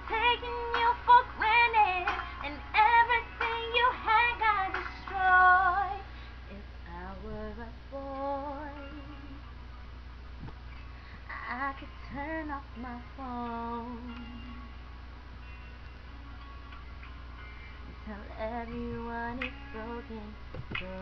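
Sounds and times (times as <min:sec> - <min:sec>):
woman singing: 0:00.0 - 0:09.4, 0:11.3 - 0:14.7, 0:18.0 - 0:21.0
faint low hum: 0:00.0 - 0:21.0.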